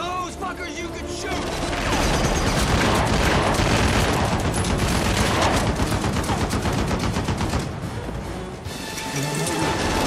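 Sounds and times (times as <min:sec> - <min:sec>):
rapid automatic gunfire: 0:01.6 - 0:07.8.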